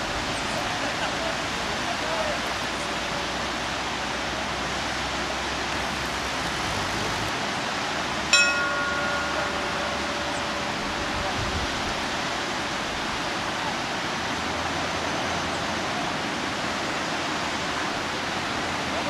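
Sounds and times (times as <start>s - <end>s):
white-water river rushing: 0.0s - 19.0s
bell ringing: 8.3s - 13.6s.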